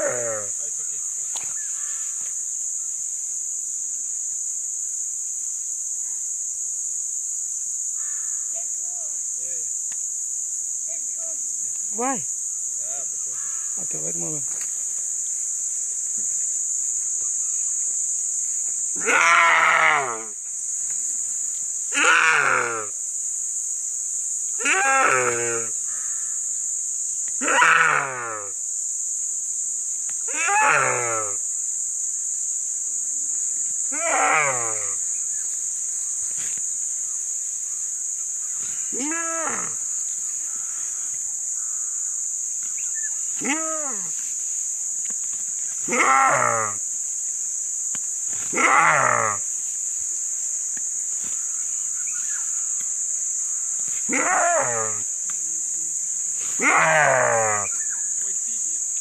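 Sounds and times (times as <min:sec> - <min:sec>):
high-pitched insect drone: 0:00.0 - 0:59.0
steady high hiss: 0:00.0 - 0:59.0
deer screaming: 0:19.0 - 0:20.3, 0:21.9 - 0:22.9, 0:27.4 - 0:28.5, 0:45.9 - 0:46.8, 0:48.5 - 0:49.4, 0:54.1 - 0:55.0.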